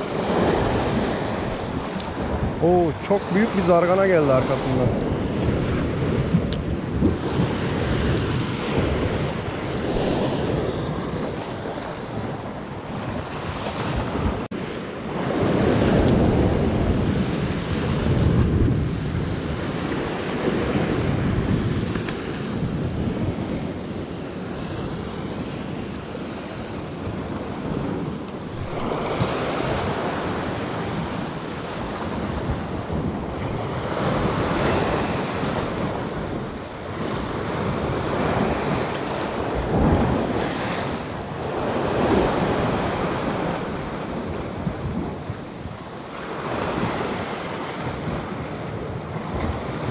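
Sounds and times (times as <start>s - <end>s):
waves breaking on rocks: 0.0s - 14.5s, 24.5s - 49.9s
wind buffeting microphone: 0.0s - 49.9s.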